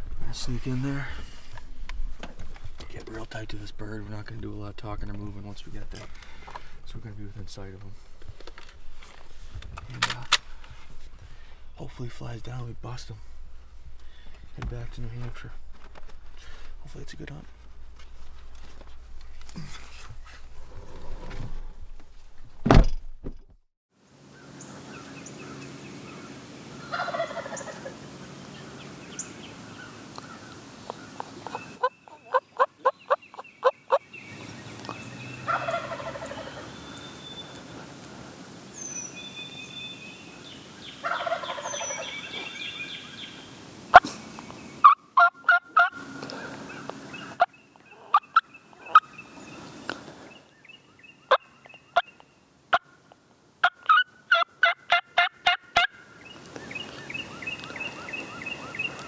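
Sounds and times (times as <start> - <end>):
songbirds chirping: 0.0 - 21.7, 24.0 - 59.0
loud thump: 22.6 - 23.6
turkey gobbling: 26.8 - 28.0, 29.8 - 34.0, 35.4 - 36.8, 41.0 - 42.5, 44.8 - 49.2, 52.7 - 53.0, 53.6 - 56.0.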